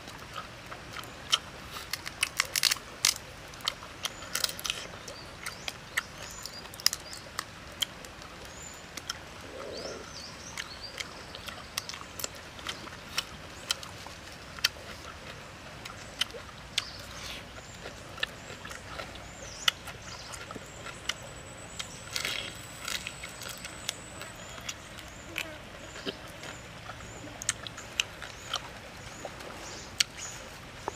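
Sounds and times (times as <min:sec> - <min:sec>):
crunching in the mouth: 0:00.9 - 0:08.1, 0:14.6 - 0:30.9
shrimp shells crackling: 0:01.9 - 0:03.2
faint bird chirps: 0:08.5 - 0:12.0.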